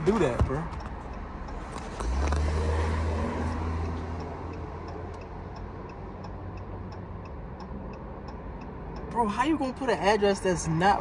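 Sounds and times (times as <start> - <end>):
flasher relay ticking: 3.8 - 9.2.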